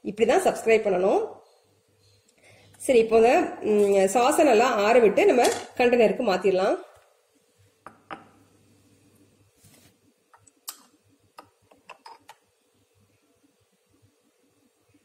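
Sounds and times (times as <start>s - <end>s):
spoon tapping a jar: 7.9s - 8.4s.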